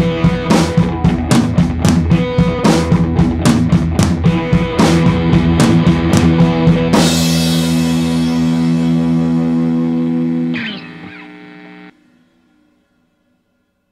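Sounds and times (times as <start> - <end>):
drum kit: 0.0 - 11.9
electric guitar chord ringing: 4.2 - 13.4.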